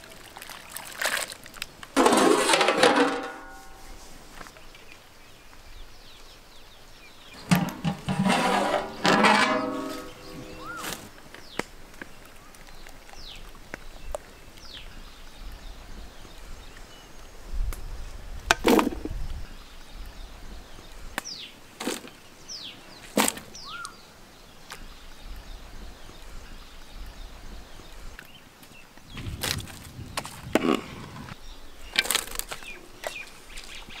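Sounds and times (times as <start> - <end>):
metal skimmer knocking on pot: 7.4 - 10.4
bird chirps: 9.6 - 11.6, 23.5 - 24.0.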